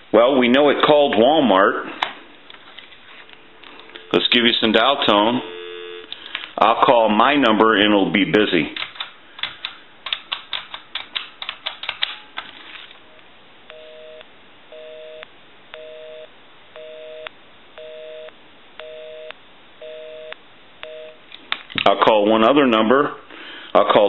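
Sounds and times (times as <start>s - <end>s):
telephone busy signal: 3.9s - 4.4s, 5.3s - 6.1s, 13.7s - 21.2s.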